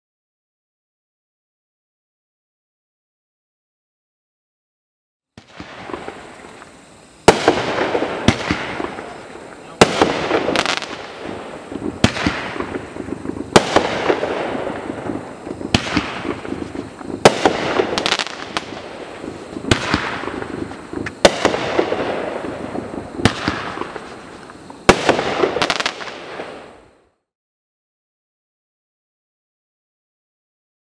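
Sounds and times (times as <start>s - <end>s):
fireworks sharp reports: 5.4s - 27.0s
crackling of bursting stars: 5.4s - 27.2s.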